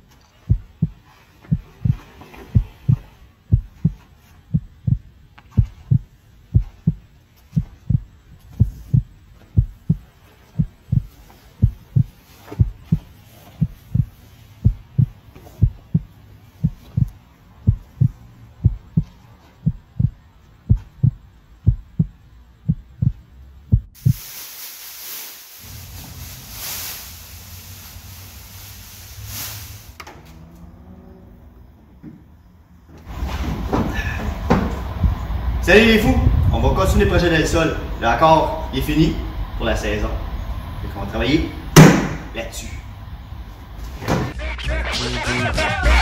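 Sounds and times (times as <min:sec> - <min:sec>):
deep heartbeat-like thumping: 0:00.4 - 0:24.2, 0:34.6 - 0:38.1.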